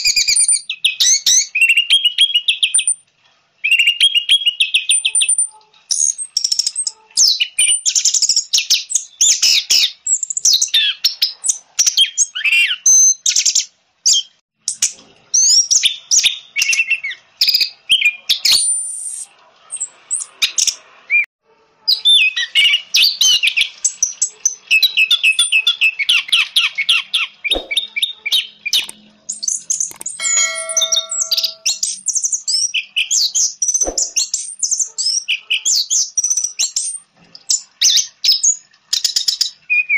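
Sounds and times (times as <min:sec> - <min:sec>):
bird singing: 0:29.5 - 0:31.8
steady ringing tone: 0:30.2 - 0:31.8.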